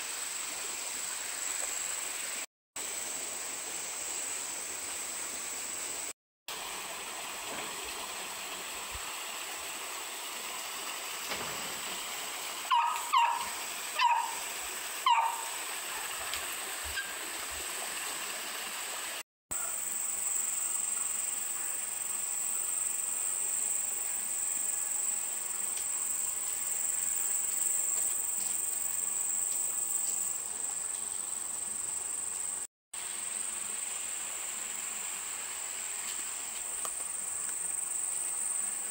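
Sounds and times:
insects droning: 0.0 - 6.1, 19.6 - 38.9.

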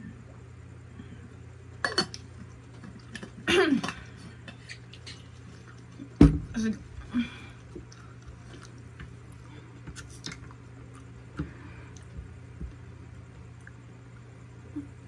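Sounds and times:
steady low hum: 0.0 - 15.0
chewing mouth sounds: 7.6 - 11.2.

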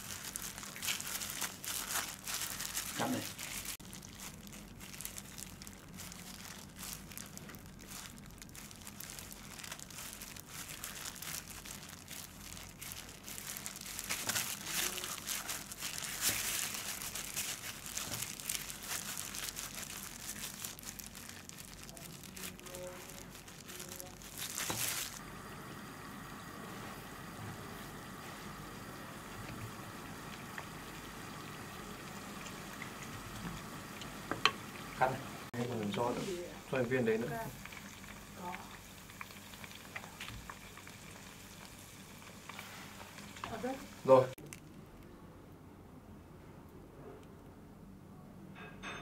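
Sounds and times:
dough squishing: 0.0 - 25.2
plastic gloves crinkling: 0.0 - 25.2, 29.7 - 44.8
frying in oil hiss: 0.0 - 44.4.

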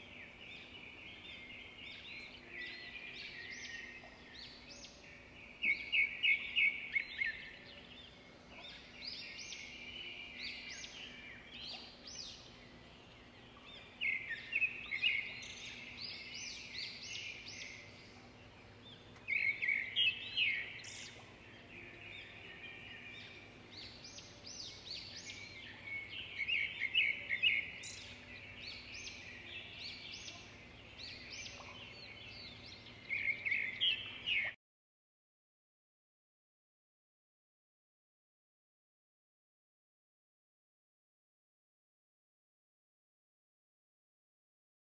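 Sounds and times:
songbirds chirping: 0.0 - 34.6.

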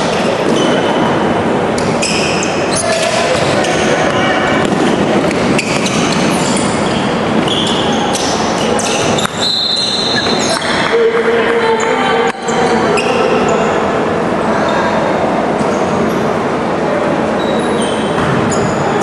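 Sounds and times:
shoe squeaks: 0.0 - 1.2, 1.8 - 10.8, 11.8 - 13.7, 17.4 - 19.0.

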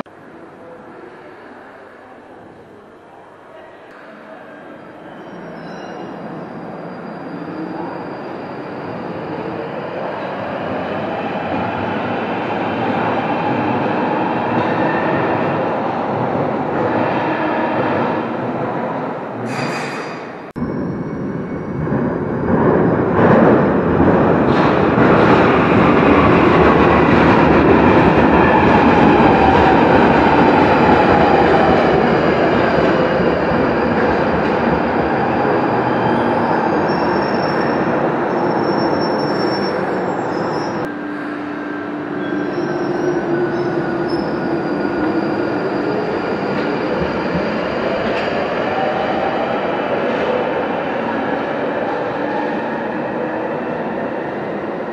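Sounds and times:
train wheel squeal: 5.0 - 10.3, 19.4 - 21.8, 35.3 - 41.4, 42.1 - 48.9.

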